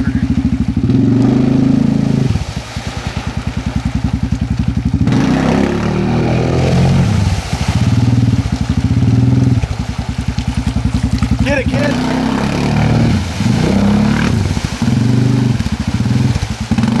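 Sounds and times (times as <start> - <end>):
engine revving hard: 0.0 - 2.4, 5.0 - 8.4, 11.4 - 17.0
tyres churning through mud: 0.0 - 17.0.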